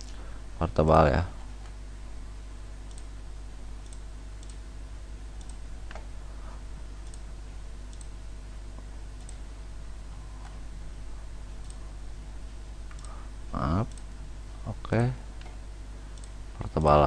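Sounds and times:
low electrical hum and hiss: 0.0s - 17.0s
computer mouse clicking: 2.9s - 3.1s, 3.8s - 4.6s, 5.4s - 6.1s, 7.0s - 7.3s, 7.9s - 8.1s, 9.2s - 9.4s, 11.6s - 11.8s, 12.9s - 13.2s, 13.8s - 14.1s, 16.2s - 16.4s.

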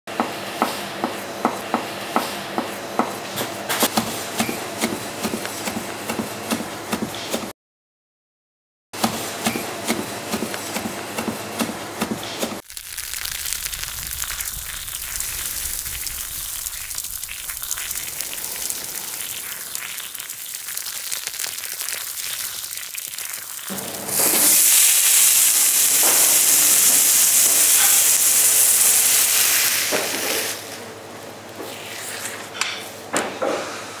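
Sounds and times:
kebabs sizzling over charcoal: 12.6s - 30.8s.

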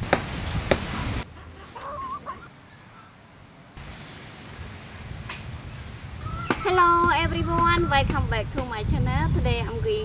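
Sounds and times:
outdoor background noise: 0.0s - 10.0s
chicken clucking: 1.4s - 2.5s.

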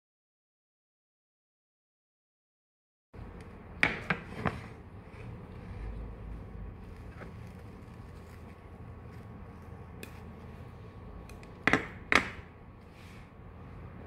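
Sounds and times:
faint hum: 3.2s - 14.0s.

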